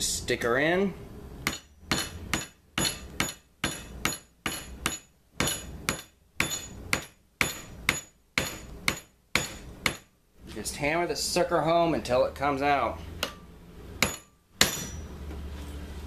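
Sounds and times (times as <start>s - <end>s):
hammer striking steel bar: 1.4s - 10.1s, 13.2s - 15.1s.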